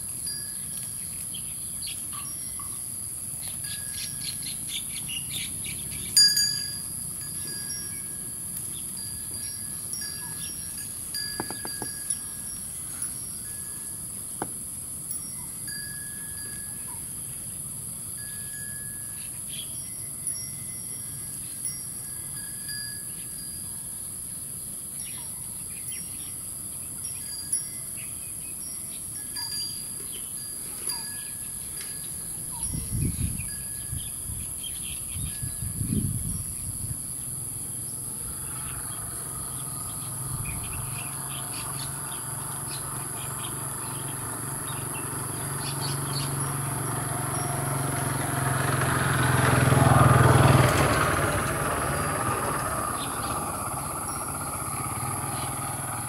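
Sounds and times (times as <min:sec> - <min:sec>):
vehicle engine hum: 0:00.0 - 0:15.7, 0:35.6 - 0:56.0
small birds chirping: 0:00.0 - 0:18.2, 0:24.3 - 0:47.5, 0:51.9 - 0:56.0.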